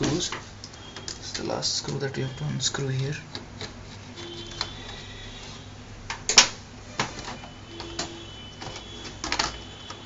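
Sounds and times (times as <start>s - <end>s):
laptop casing clicks and knocks: 6.1s - 10.0s.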